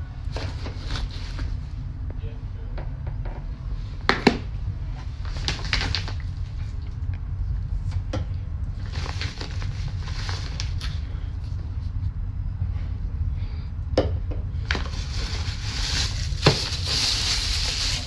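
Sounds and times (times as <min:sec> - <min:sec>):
low rumble: 0:00.0 - 0:18.0
cloth and plastic rustling: 0:00.3 - 0:01.8, 0:04.9 - 0:06.8, 0:08.8 - 0:12.0, 0:14.6 - 0:18.0.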